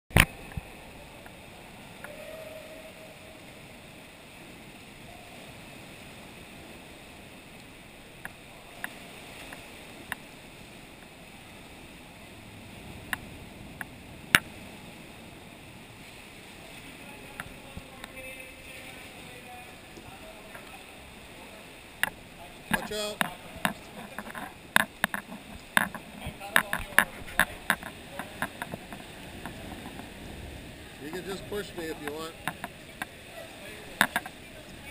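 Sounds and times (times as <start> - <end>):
water lapping around kayaks: 0.1 - 34.9
sharp clicks and knocks: 22.0 - 30.1, 32.0 - 33.1, 34.0 - 34.4.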